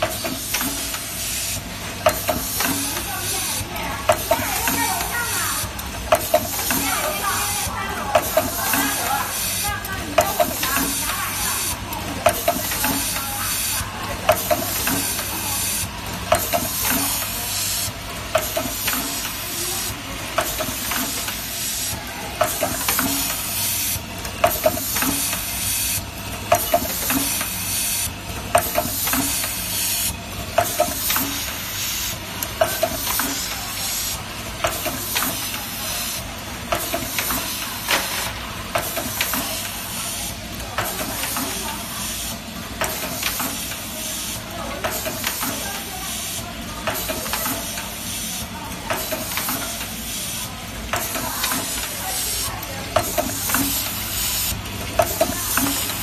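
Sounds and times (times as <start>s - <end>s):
machine hissing: 0.0s - 56.0s
sharp machine clicks: 0.0s - 56.0s.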